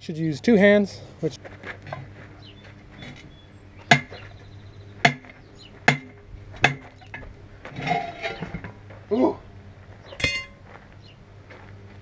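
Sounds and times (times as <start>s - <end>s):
sharp metallic clanks: 5.0s - 8.8s, 10.2s - 10.7s.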